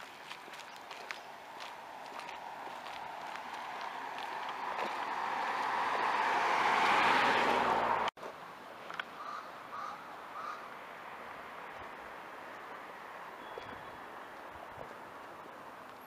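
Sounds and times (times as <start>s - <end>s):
car passing: 1.2s - 8.1s.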